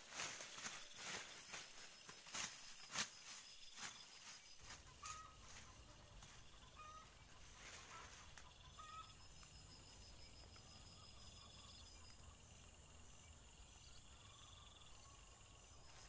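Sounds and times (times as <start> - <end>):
dry leaves and twigs crackling: 0.0 - 10.9.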